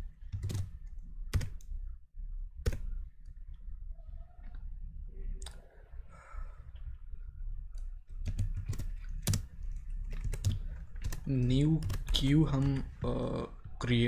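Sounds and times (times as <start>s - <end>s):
keyboard typing: 0.0s - 1.7s, 2.6s - 3.4s, 7.7s - 13.8s.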